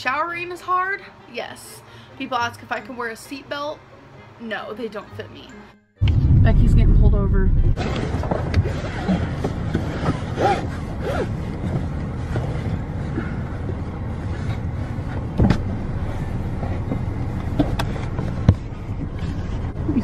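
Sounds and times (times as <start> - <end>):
car engine and road noise: 6.0 - 20.0.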